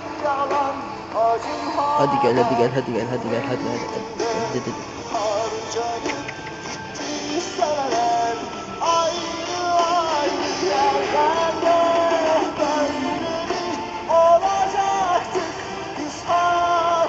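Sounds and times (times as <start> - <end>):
guitar: 0.0 - 17.0
person singing: 0.0 - 17.0.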